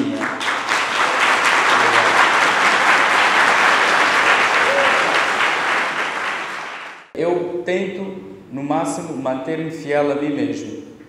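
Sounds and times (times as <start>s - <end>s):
audience applauding: 0.0s - 7.1s
voices: 1.7s - 2.3s.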